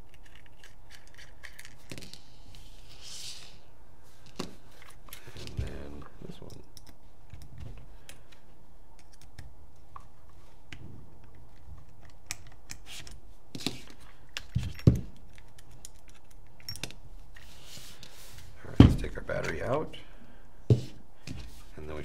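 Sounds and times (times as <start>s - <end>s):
plastic parts clicking and knocking: 0.0s - 2.2s.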